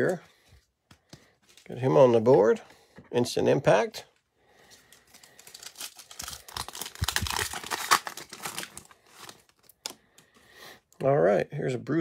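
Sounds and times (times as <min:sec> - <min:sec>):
wrapper crackling being torn: 0:04.9 - 0:10.0.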